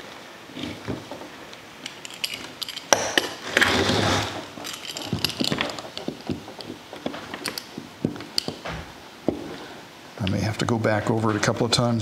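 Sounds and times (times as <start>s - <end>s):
roller scraping screen mesh: 3.4s - 6.0s.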